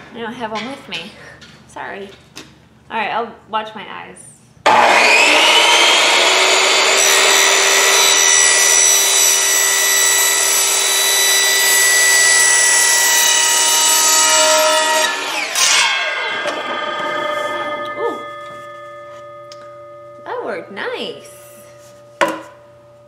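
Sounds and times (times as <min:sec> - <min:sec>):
miter saw cutting plastic pipe: 0:04.7 - 0:18.0.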